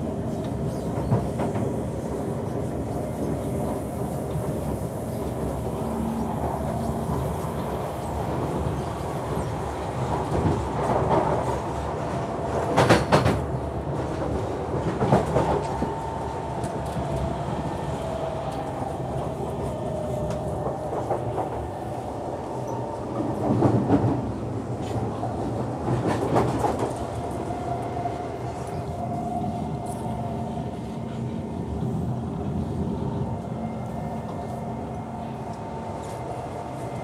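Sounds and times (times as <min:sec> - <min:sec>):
train wheels rumbling on rail: 0:00.0 - 0:37.0
clickety-clack knocks: 0:12.6 - 0:13.4.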